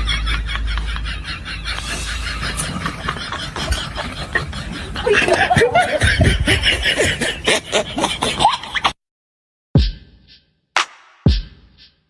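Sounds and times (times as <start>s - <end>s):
people laughing: 0.0s - 9.0s.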